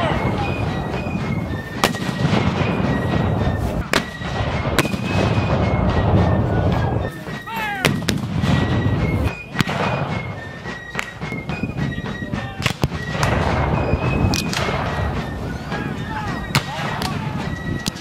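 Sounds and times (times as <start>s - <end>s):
voices: 0.0s - 4.2s, 5.1s - 18.0s
music playing: 0.0s - 18.0s
cannon and musket shots: 1.7s - 6.7s, 9.6s - 10.3s, 12.6s - 15.3s.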